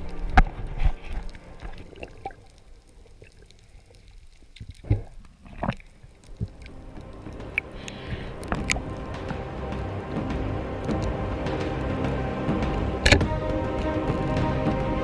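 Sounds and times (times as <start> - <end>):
background music: 0.0 - 2.9, 6.3 - 15.0
muffled underwater water noise: 0.0 - 15.0.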